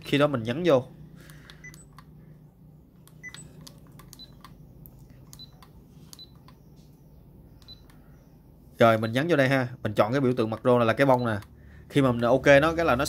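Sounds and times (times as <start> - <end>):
camera buttons clicking: 3.0 - 6.6.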